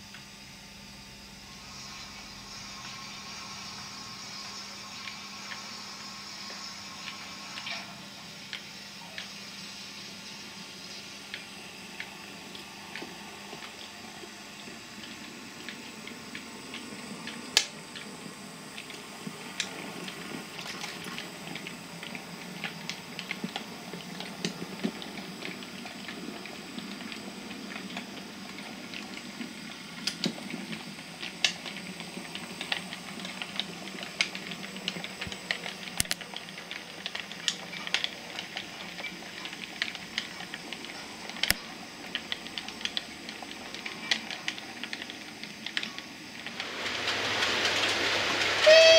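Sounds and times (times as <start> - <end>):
model train running on track: 0.0 - 48.9
wheels clicking over rail joints: 18.8 - 48.9.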